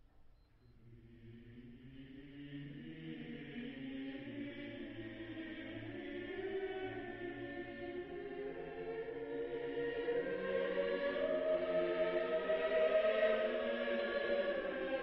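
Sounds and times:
choral chant: 0.8s - 15.0s.

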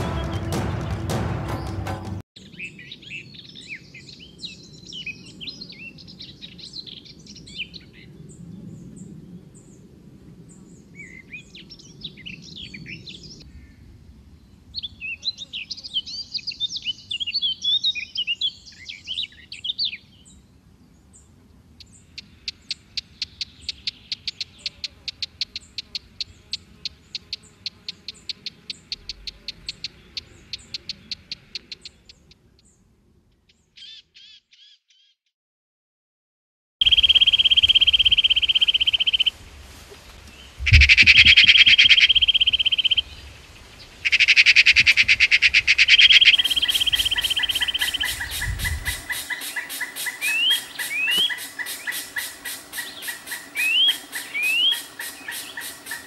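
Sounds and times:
small birds chirping: 14.7s - 35.2s, 36.8s - 39.3s, 40.3s - 56.0s
fast even bird trill: 36.8s - 39.3s, 44.1s - 56.0s.

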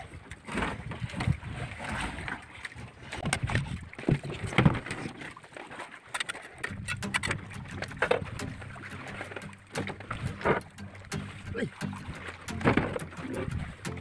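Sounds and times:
knocks and thumps in fish hold: 3.2s - 5.1s, 6.6s - 14.0s.

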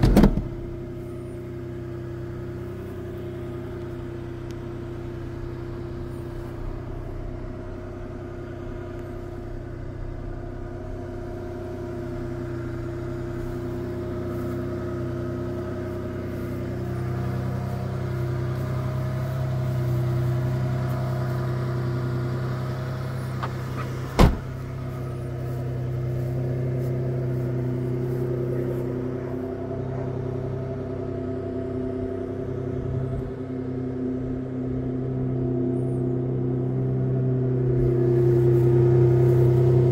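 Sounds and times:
engine idling: 0.0s - 39.9s.

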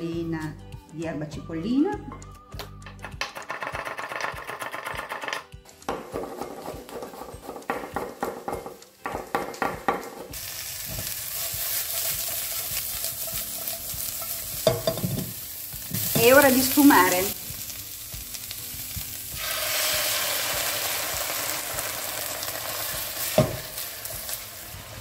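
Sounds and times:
food sizzling in frying pan: 6.1s - 25.0s
knife chopping on wooden board: 7.0s - 10.3s.

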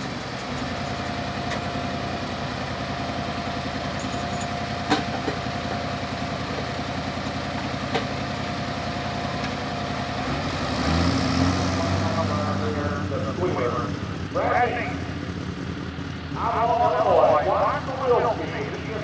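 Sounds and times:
tractor engine idling: 0.0s - 10.5s, 11.4s - 19.0s.

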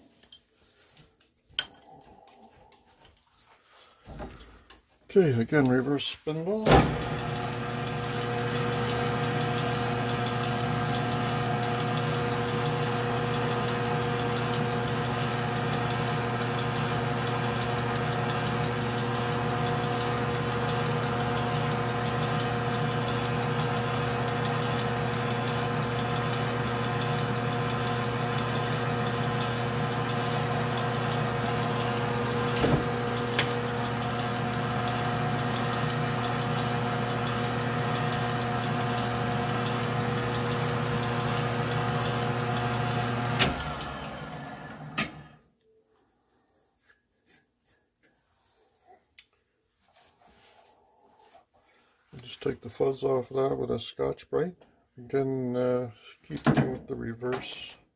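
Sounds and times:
lathe motor humming: 6.8s - 45.3s.

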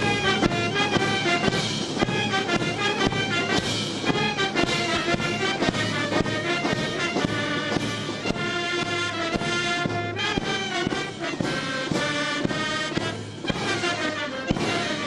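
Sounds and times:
brass band playing: 0.0s - 15.0s
drum strokes: 0.0s - 15.0s.

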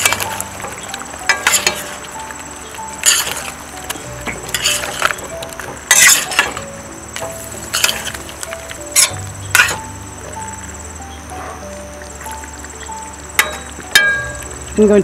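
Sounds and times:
metal spoon scraping a pot: 0.0s - 2.0s, 3.0s - 3.6s, 4.2s - 6.6s, 7.6s - 8.2s, 8.9s - 9.9s
soft background music: 0.0s - 15.0s.

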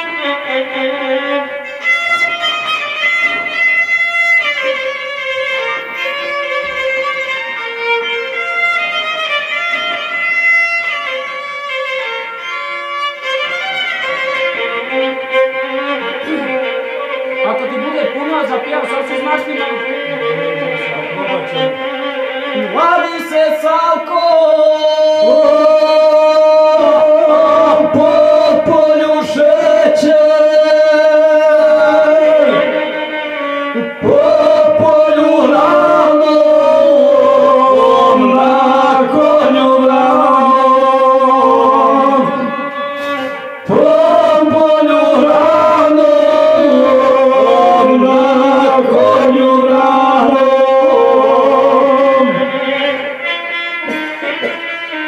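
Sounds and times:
violin playing: 0.0s - 55.0s
man singing into a microphone: 19.5s - 54.7s.

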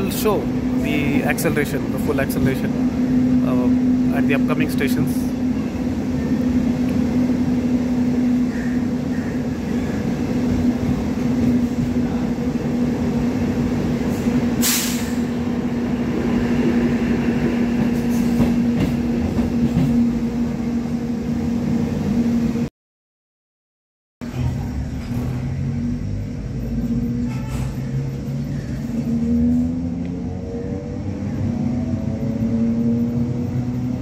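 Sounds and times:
train running noise: 0.0s - 22.7s, 24.2s - 34.0s
brief hiss: 14.6s - 15.2s.

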